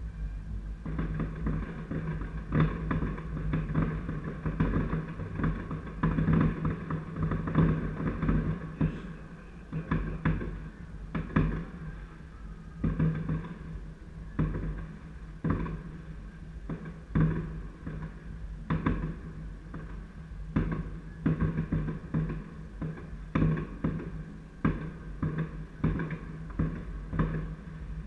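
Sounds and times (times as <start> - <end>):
music with steady bass: 0.0 - 9.2
fireworks bangs: 0.0 - 28.0.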